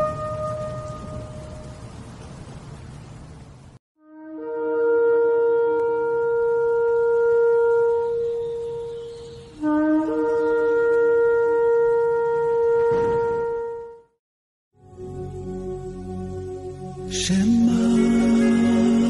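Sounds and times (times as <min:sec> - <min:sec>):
shofar blasts: 0:00.0 - 0:01.7, 0:04.0 - 0:09.0, 0:09.6 - 0:14.1.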